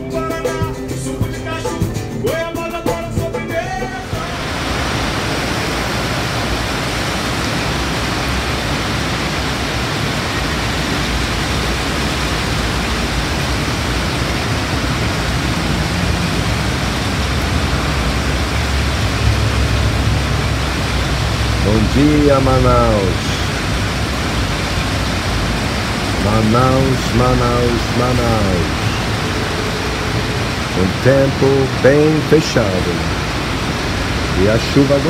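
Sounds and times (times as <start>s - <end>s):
heavy rain: 3.8s - 35.0s.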